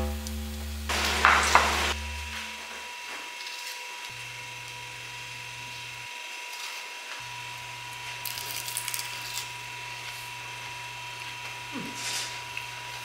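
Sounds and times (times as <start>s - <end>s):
crisp crunches of biting: 8.2s - 9.5s.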